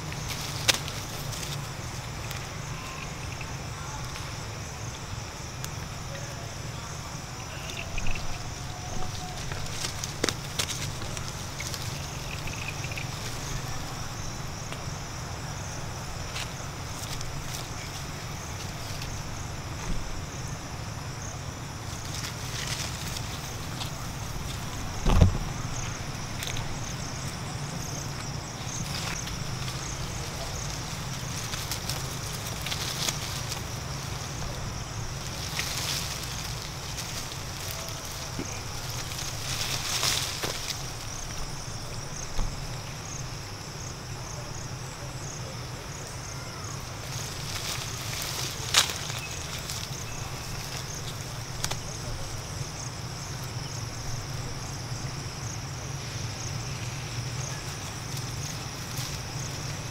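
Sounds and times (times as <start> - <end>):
leaves rustling and twigs snapping: 0.0 - 6.2, 7.5 - 15.4, 16.1 - 20.2, 21.7 - 43.0, 46.4 - 53.6, 56.0 - 59.9
insects trilling: 0.0 - 59.9
wind rumble on microphone: 7.2 - 39.9.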